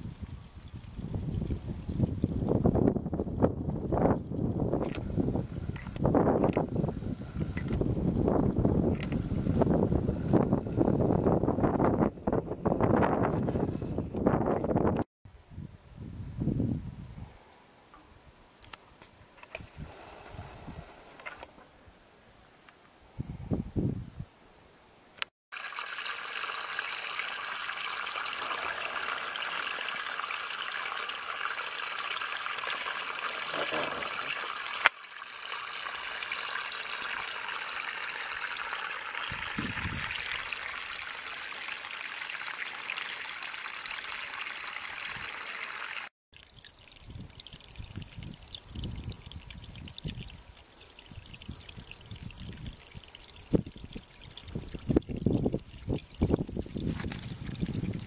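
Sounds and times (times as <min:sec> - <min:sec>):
water trickling over mud: 0:00.0 - 0:02.4, 0:25.5 - 0:58.0.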